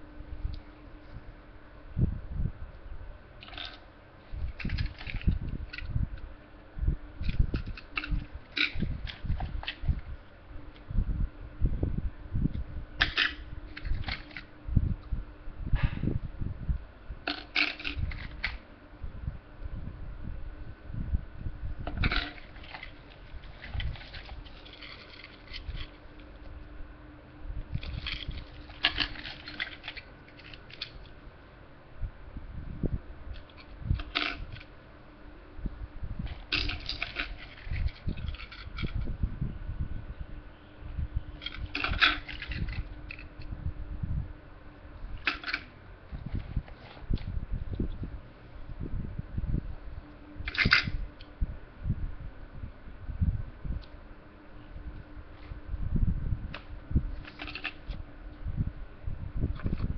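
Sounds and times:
faint steady hum: 0.0 - 59.9
plastic sleeve crinkling: 22.0 - 26.4, 27.8 - 31.1.

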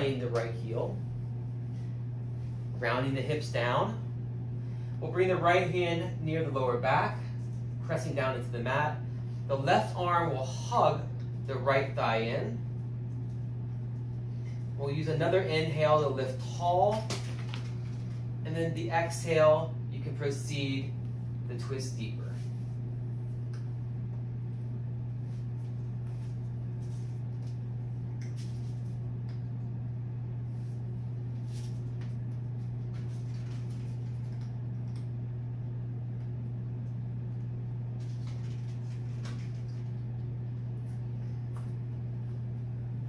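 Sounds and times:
low electrical hum: 0.0 - 43.0.

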